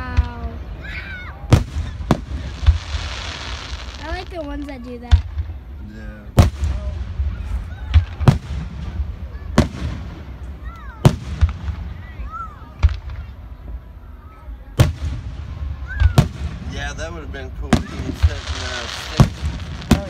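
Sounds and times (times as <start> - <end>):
firework shells booming: 1.4 - 5.6, 6.3 - 12.0, 14.8 - 17.0, 17.7 - 20.0.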